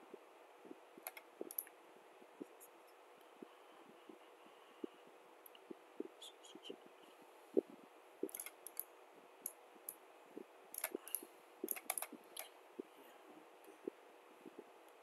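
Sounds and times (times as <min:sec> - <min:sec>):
soft low thumps: 0:00.0 - 0:01.6, 0:02.3 - 0:02.6, 0:03.3 - 0:05.0, 0:05.6 - 0:08.4, 0:10.3 - 0:14.8
faint hiss: 0:00.0 - 0:15.0
computer mouse buttons clicking: 0:01.0 - 0:01.7, 0:08.2 - 0:10.0, 0:10.7 - 0:12.5.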